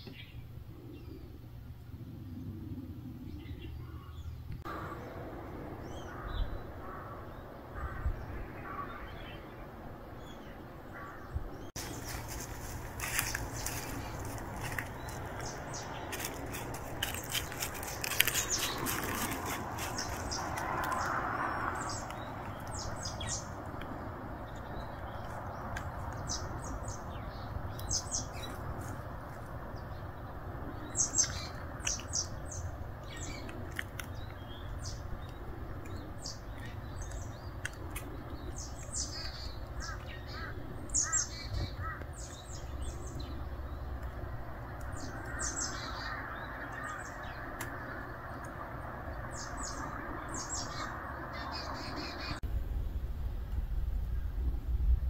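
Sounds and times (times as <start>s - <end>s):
small birds chirping: 0.0s - 52.4s
low background rumble: 0.0s - 55.0s
rustling: 11.8s - 21.2s.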